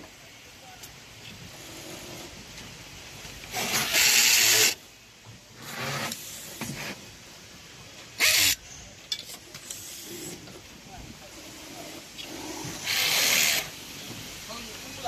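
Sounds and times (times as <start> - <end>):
cable tie gun mechanical bursts: 3.5 - 4.8, 8.2 - 8.6, 12.8 - 13.7.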